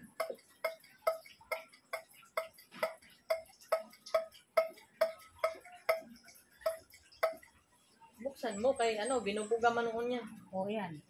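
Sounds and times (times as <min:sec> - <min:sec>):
clock ticking: 0:00.0 - 0:07.6.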